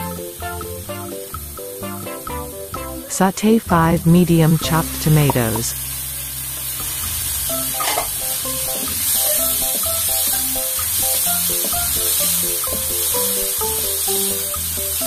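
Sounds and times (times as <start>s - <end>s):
light plucked background music: 0.0s - 15.0s
vegetables sizzling in hot oil: 4.0s - 15.0s.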